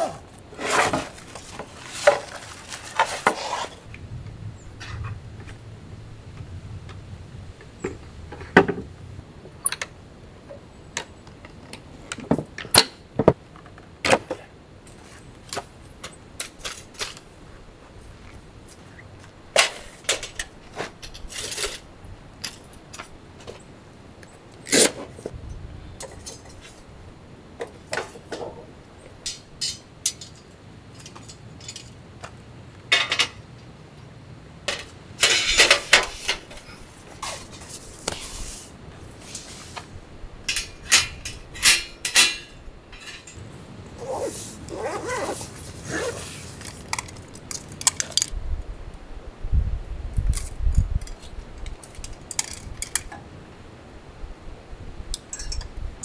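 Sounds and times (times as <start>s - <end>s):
bags rustling: 0.0s - 3.9s, 44.0s - 47.8s
small hard clicks and clinks: 55.2s - 55.7s.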